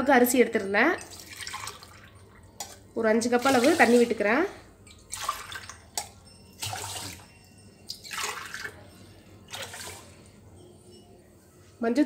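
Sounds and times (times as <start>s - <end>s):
water pouring into pot: 1.0s - 2.6s, 3.4s - 4.2s, 4.9s - 6.0s, 6.6s - 7.3s, 8.0s - 8.8s.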